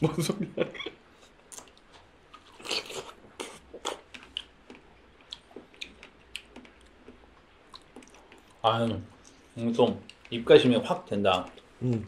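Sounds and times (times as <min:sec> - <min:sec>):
strawberries bitten and chewed: 0:00.8 - 0:10.4.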